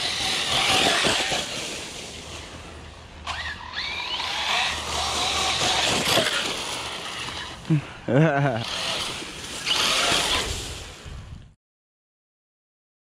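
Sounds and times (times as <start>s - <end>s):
electric motor whine: 0.0s - 7.8s, 8.5s - 10.6s
rc truck tyre and drivetrain noise: 0.0s - 11.5s.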